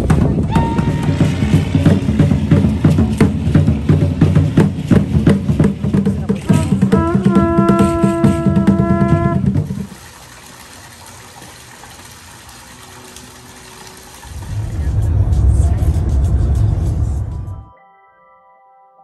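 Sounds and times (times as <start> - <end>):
drums beating fast rhythm: 0.0 - 10.0, 14.3 - 17.6
conch shell trumpet: 6.4 - 10.0.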